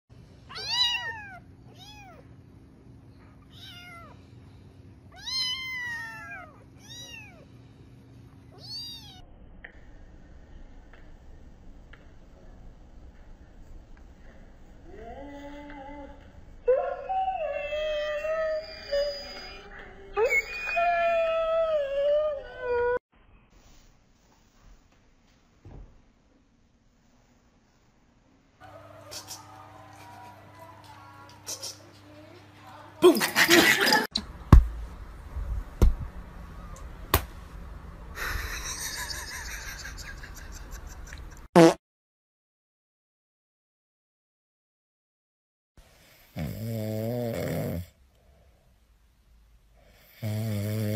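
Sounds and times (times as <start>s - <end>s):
dogs howling: 15.3s - 23.0s, 28.6s - 30.9s.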